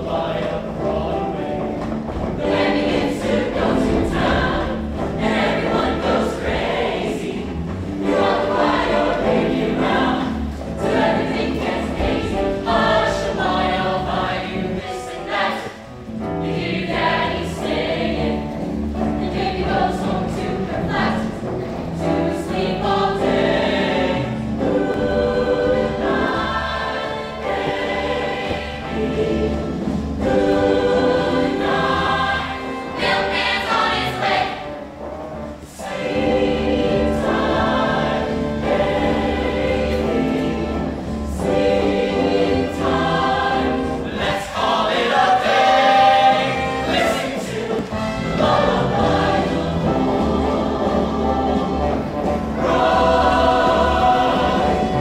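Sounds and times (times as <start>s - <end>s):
choir singing: 0.0s - 55.0s
instrumental accompaniment: 0.0s - 55.0s.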